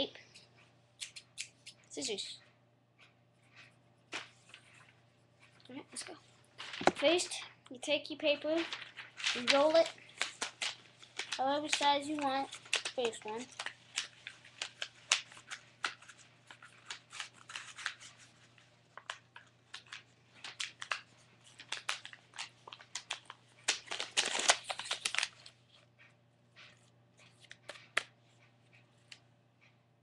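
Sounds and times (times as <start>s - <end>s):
paper crinkling: 4.1s - 7.4s, 8.2s - 25.8s.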